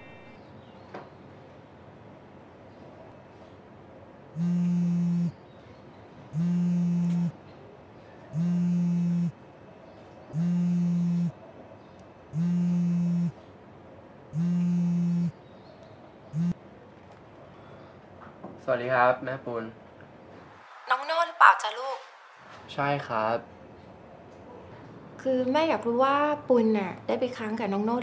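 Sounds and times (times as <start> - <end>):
phone buzzing: 4.4 - 5.4, 6.4 - 7.4, 8.4 - 9.4, 10.4 - 11.4, 12.4 - 13.4, 14.4 - 15.4, 16.4 - 16.6.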